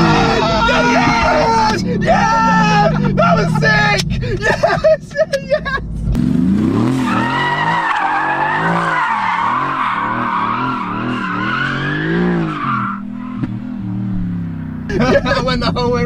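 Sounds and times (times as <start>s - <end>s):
car engine revving: 0.0s - 4.9s, 5.6s - 16.0s
tyres squealing: 6.9s - 13.5s.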